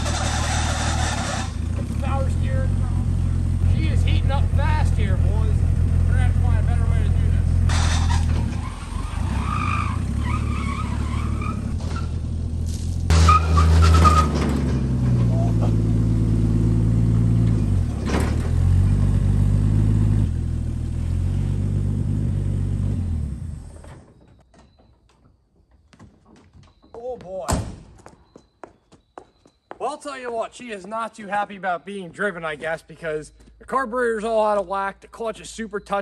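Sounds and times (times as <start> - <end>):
truck engine running rough: 0.0 - 23.9.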